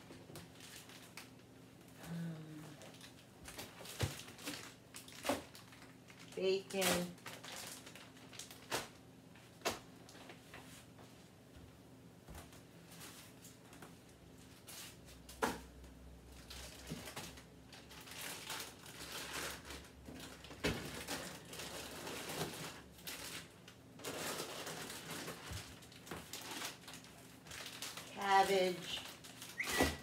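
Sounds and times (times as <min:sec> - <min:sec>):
plastic bags crinkling: 0:00.0 - 0:01.6, 0:02.8 - 0:09.4, 0:16.2 - 0:30.0.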